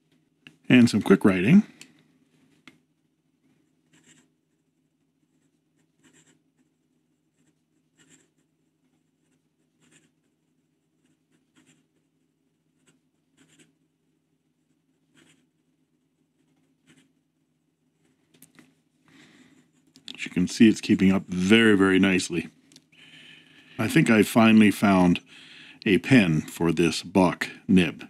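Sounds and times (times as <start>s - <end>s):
fountain pen scratching on paper: 3.9s - 13.8s, 14.6s - 15.6s, 16.2s - 17.2s.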